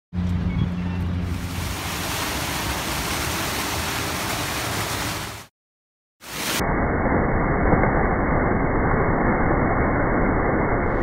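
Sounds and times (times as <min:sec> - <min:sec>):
fountain water splashing: 0:01.2 - 0:05.5.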